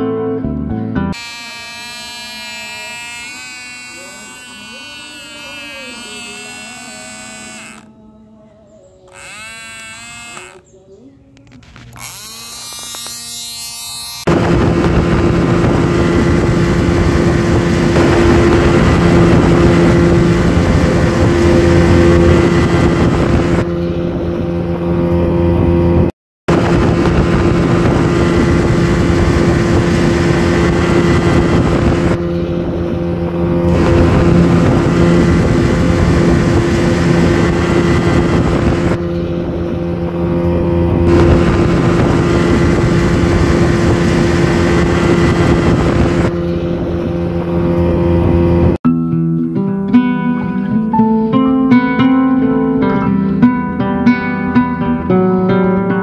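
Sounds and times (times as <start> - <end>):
toy boat motor buzzing: 1.2 - 8.0, 9.1 - 10.7, 11.7 - 14.4, 33.7 - 39.0.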